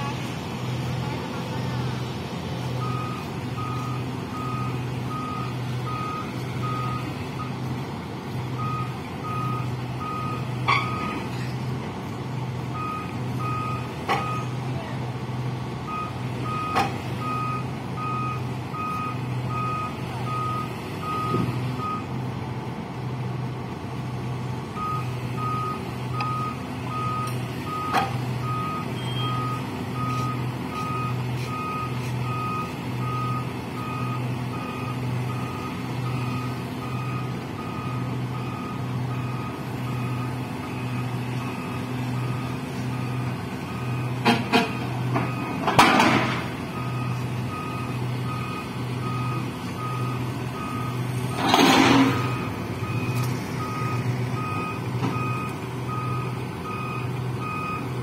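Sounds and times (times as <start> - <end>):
diesel engine running: 0.0 - 58.0
backup alarm beeping: 2.8 - 7.5, 24.8 - 51.1, 52.0 - 58.0.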